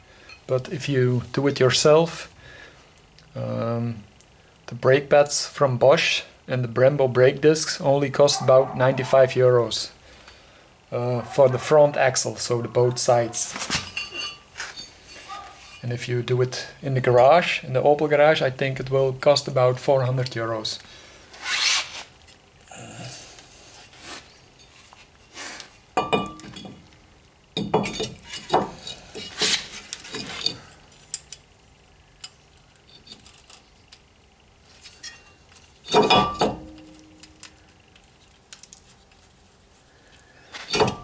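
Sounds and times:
metal clinks and knocks: 0:26.0 - 0:26.8, 0:27.6 - 0:31.4, 0:34.8 - 0:37.5, 0:40.6 - 0:41.0.

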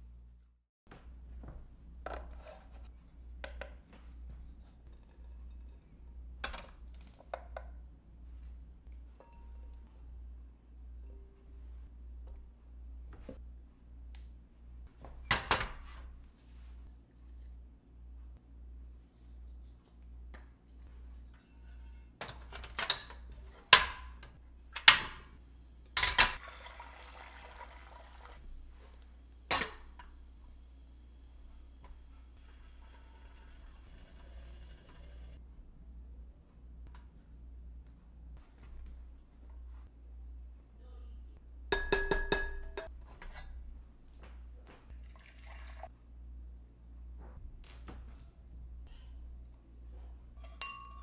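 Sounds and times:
spatula clinking on glass bowl: 0:50.4 - 0:51.0.

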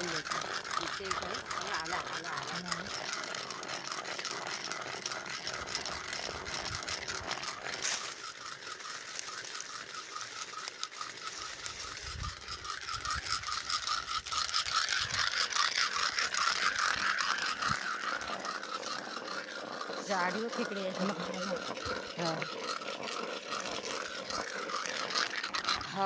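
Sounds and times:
high pulsing drone: 0:07.4 - 0:26.0.

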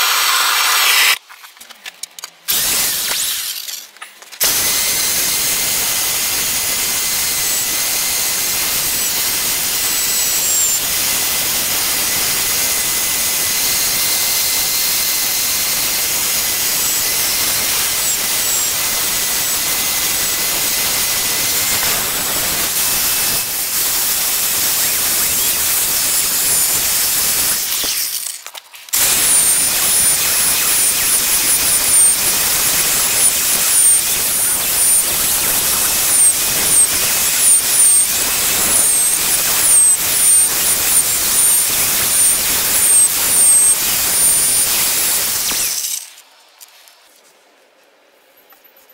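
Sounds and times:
electric drill whirring: 0:00.0 - 0:01.2, 0:02.5 - 0:03.8, 0:04.4 - 0:46.2
wire brush scratching wood: 0:20.4 - 0:47.0.

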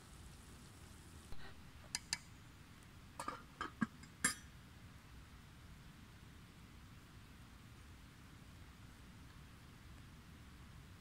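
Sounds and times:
metal pots clinking: 0:03.2 - 0:04.5.

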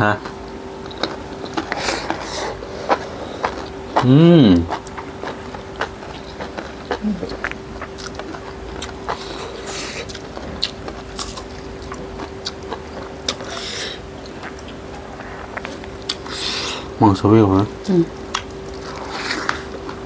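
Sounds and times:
faint steady hum: 0:00.0 - 0:20.0
wet chewing and lip smacks: 0:04.7 - 0:16.4, 0:18.3 - 0:20.0.

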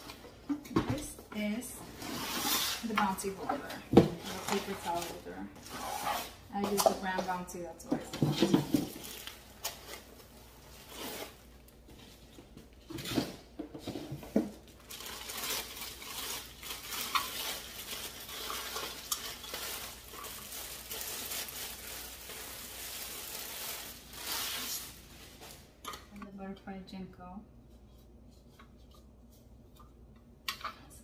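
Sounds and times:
plastic bag crinkling: 0:08.8 - 0:11.6, 0:14.7 - 0:25.8.

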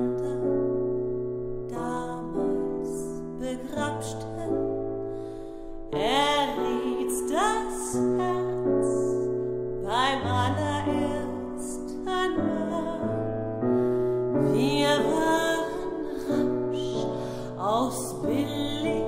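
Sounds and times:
piano chords: 0:00.0 - 0:19.0
soprano singing with vibrato: 0:05.9 - 0:09.2, 0:09.8 - 0:13.4, 0:14.4 - 0:19.0.

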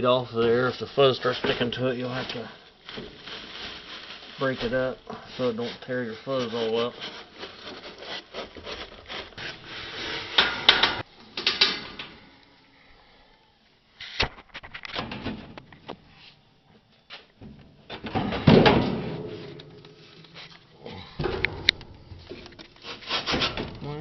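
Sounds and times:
sheet metal scraping: 0:05.4 - 0:11.0, 0:21.2 - 0:23.8
metal clunk: 0:10.3 - 0:12.1, 0:21.2 - 0:23.8.

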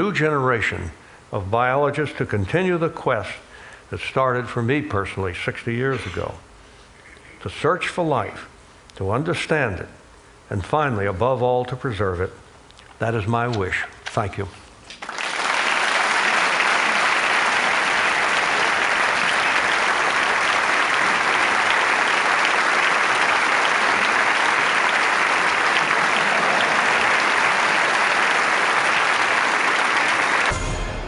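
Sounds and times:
audience applauding: 0:15.0 - 0:30.6
outro music: 0:30.4 - 0:31.0.

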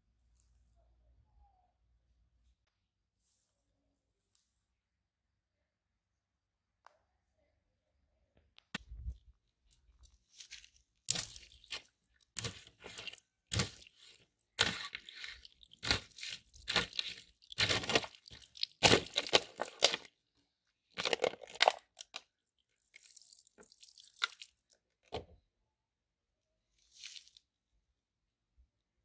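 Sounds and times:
sword cutting plastic bottles: 0:12.4 - 0:20.1.

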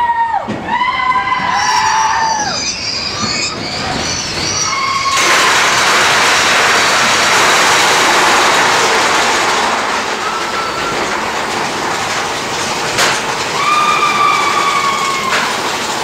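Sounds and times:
roller coaster rattle and rumble: 0:00.1 - 0:16.0
wheel squeal: 0:00.8 - 0:16.0.

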